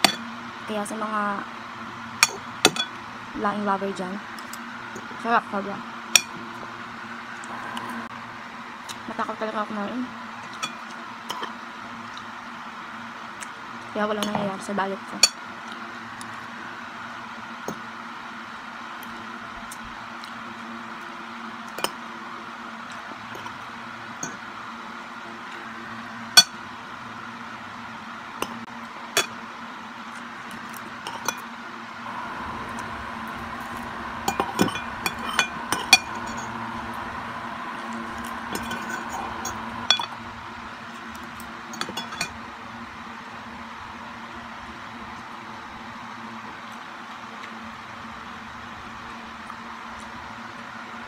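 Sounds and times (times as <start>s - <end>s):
low hum: 0.0s - 10.8s, 31.9s - 42.3s.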